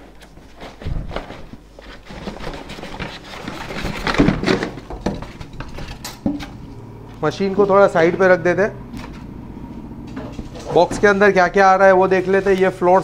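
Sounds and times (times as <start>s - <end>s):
packing rustling and scraping: 0.0s - 6.6s.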